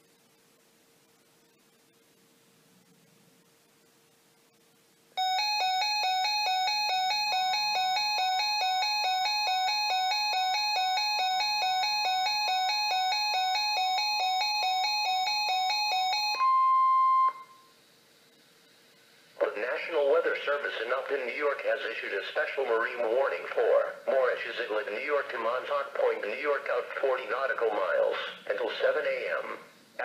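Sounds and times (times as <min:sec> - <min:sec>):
electronic alarm chime: 0:05.2 - 0:17.7
steady alarm tone: 0:05.2 - 0:17.8.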